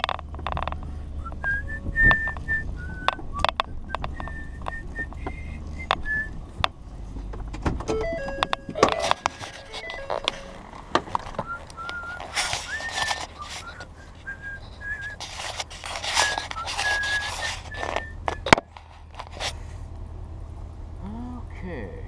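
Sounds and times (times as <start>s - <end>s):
man whistling: 1.2s - 6.4s, 11.4s - 15.2s, 16.2s - 18.5s
rustling handling noise: 8.3s - 19.8s.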